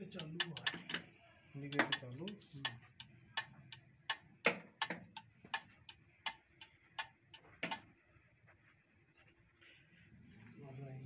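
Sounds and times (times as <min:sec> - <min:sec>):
sharp clicks and knocks: 0:00.0 - 0:01.1, 0:01.7 - 0:07.9
crickets chirping: 0:00.0 - 0:11.0.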